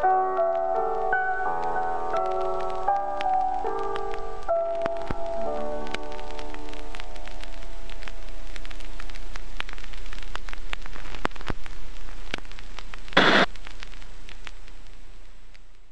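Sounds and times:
steady hiss: 0.0s - 15.9s
record surface clicks and pops: 0.4s - 15.9s
loud noise burst: 13.2s - 13.5s.

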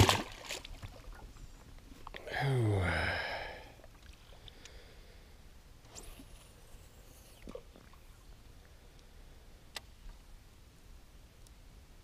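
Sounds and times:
fish splashing into water: 0.0s - 1.0s
man sighing: 2.2s - 3.8s.

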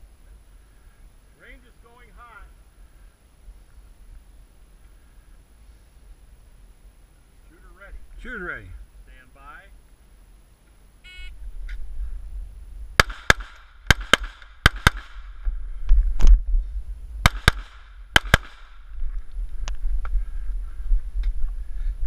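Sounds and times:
rifle shots: 13.0s - 15.4s, 17.2s - 18.8s.

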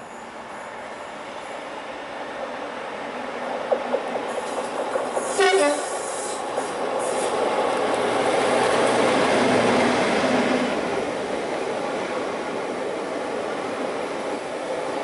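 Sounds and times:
diesel locomotive engine: 0.0s - 15.0s
train wheels clattering on rails: 3.3s - 10.2s
locomotive horn blast: 5.4s - 5.9s.

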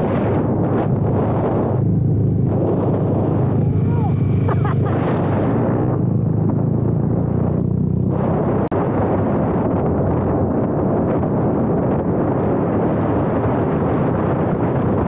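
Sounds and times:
wind rushing over microphone: 0.0s - 15.0s
motorcycle engine running: 0.3s - 8.6s.

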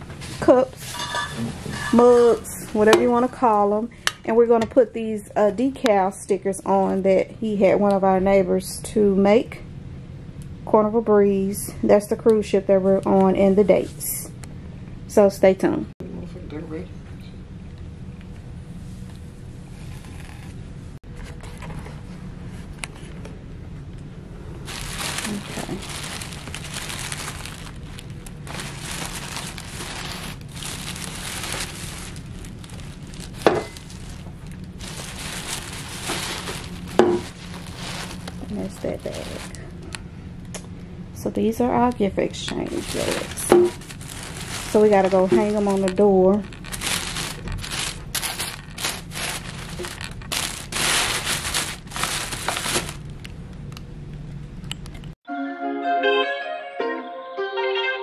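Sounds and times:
tissue paper rustling: 24.7s - 39.6s, 42.7s - 53.1s.

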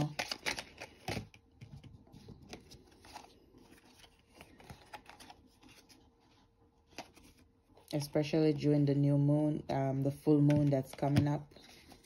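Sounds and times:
cards rustling: 0.0s - 7.9s.

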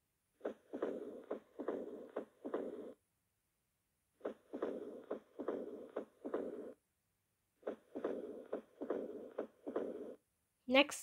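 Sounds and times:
heartbeat with murmur: 0.4s - 3.0s, 4.2s - 6.8s, 7.6s - 10.2s.

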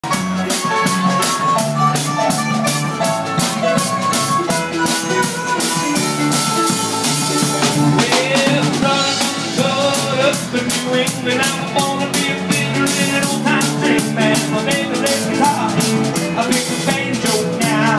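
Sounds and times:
harmonica playing lead: 0.0s - 10.4s
drum kit beat: 0.0s - 17.9s
electric keyboard: 0.0s - 17.9s.

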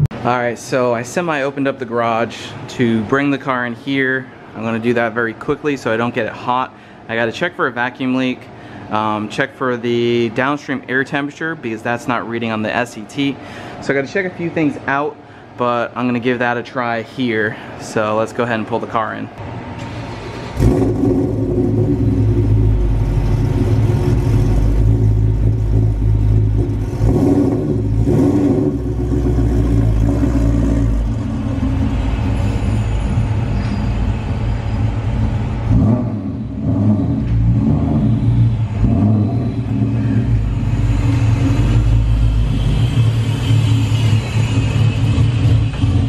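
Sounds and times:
car engine low rumble: 19.4s - 46.0s.

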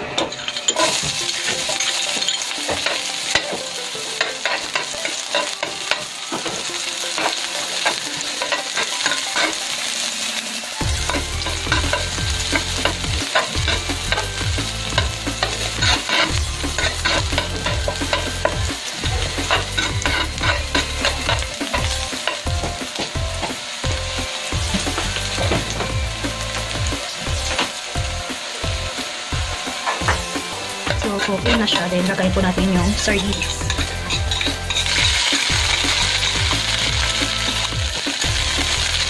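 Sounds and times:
metal spatula scraping a pan: 0.0s - 3.6s, 7.1s - 10.3s, 11.0s - 22.6s, 29.8s - 37.7s
onion sizzling in hot oil: 0.0s - 39.0s.

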